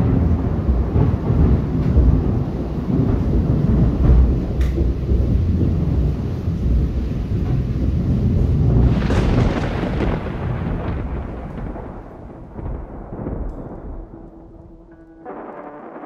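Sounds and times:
thunder rumbling: 0.0 - 16.0
brass music: 14.1 - 16.0.

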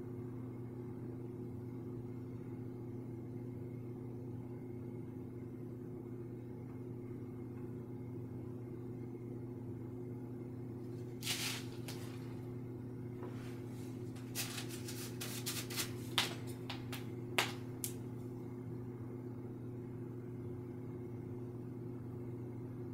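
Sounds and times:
steady low hum: 0.0 - 22.9
paint brush swish: 11.2 - 12.3
brush scratchy dabs and taps: 14.1 - 18.0.

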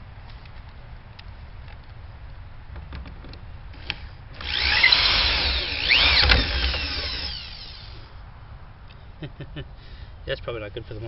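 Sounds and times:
electric drill whining into wood: 3.8 - 8.1.

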